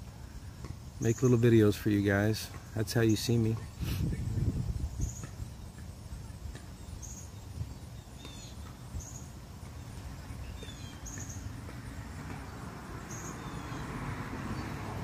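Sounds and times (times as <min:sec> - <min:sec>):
faint bird chirps: 0:02.9 - 0:11.5
wind buffeting microphone: 0:03.7 - 0:06.6.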